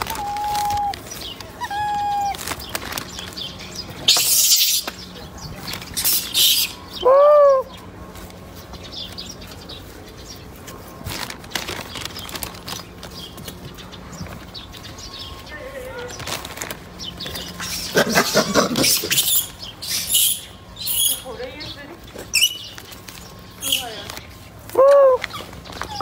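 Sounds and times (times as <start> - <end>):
monkey cooing: 0.0 - 1.0, 1.6 - 2.4, 17.4 - 20.4.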